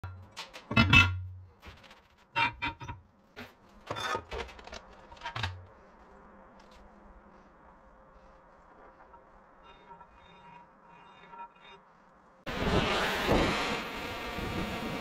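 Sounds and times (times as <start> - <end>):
metal clanks and scrapes: 0.0 - 5.6, 9.6 - 11.9.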